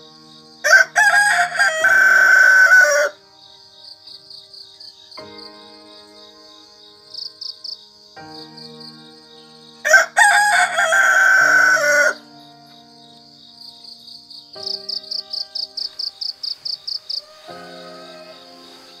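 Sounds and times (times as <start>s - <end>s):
crickets chirping: 0.0s - 19.0s
rooster crowing: 0.6s - 3.2s, 9.8s - 12.2s, 16.6s - 19.0s.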